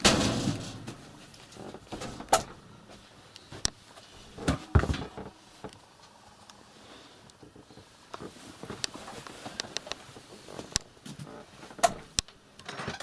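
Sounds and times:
door thud with rattle: 0.0 - 1.0.

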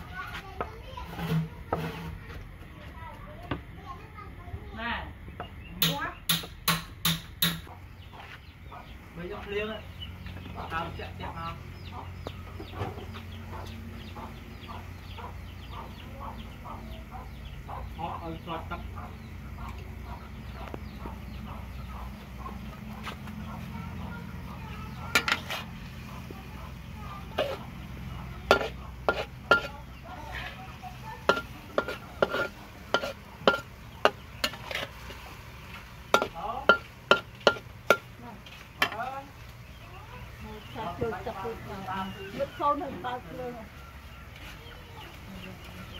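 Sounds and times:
food sizzling: 0.0 - 2.4, 24.2 - 45.9
chickens clucking: 7.4 - 45.9
metal spatula clanking on a wok: 25.1 - 25.6, 27.4 - 27.6, 28.4 - 30.0, 31.0 - 35.2, 36.1 - 39.0.

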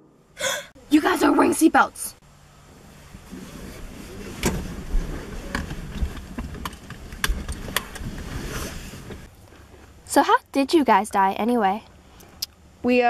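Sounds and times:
car cabin rumble: 2.7 - 9.9.

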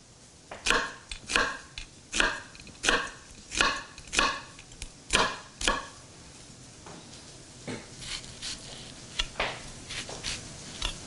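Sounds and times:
knife chopping onion on wooden board: 0.5 - 6.0.

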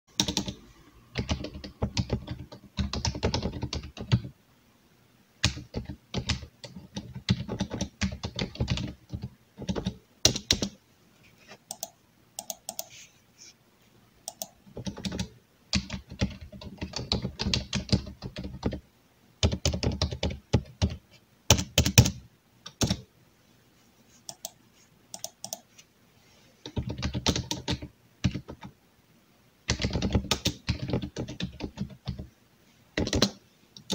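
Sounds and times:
keyboard typing clicks: 0.2 - 4.3, 11.7 - 13.0, 14.2 - 18.8, 24.3 - 25.7.

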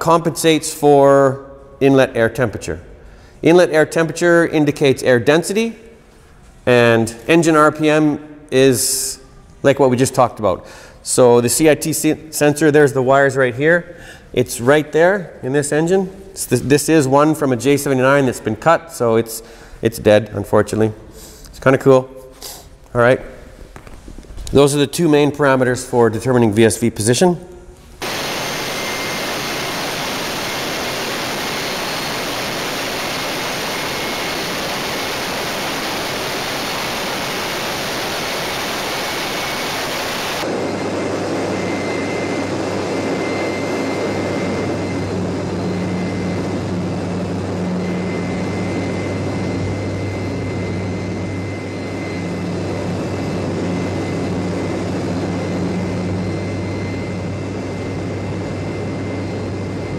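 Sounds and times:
mechanical drone with hum: 27.7 - 59.9
loud rushing noise: 28.0 - 42.0.

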